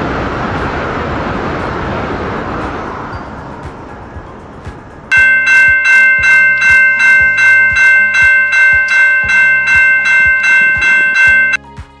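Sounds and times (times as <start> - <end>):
train passing: 0.0 - 11.6
level-crossing warning bell ringing: 5.1 - 11.6.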